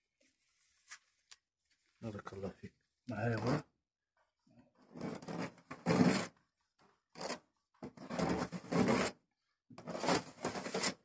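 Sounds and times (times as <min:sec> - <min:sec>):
spreader scraping filler on panel: 0:04.9 - 0:06.3, 0:07.2 - 0:09.2, 0:09.8 - 0:11.0.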